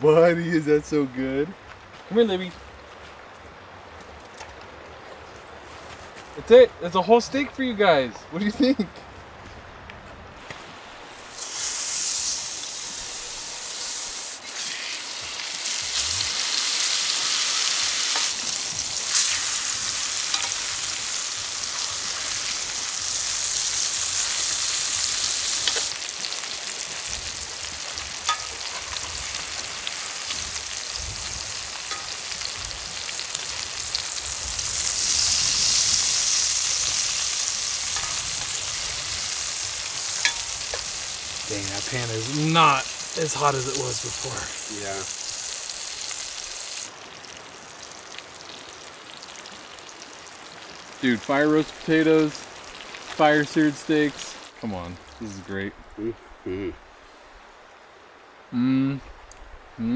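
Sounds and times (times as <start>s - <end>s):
steaks sizzling in a skillet: 11.0s - 54.4s
metal tongs clicking on pan: 25.6s - 25.9s, 31.9s - 32.2s, 40.2s - 40.8s.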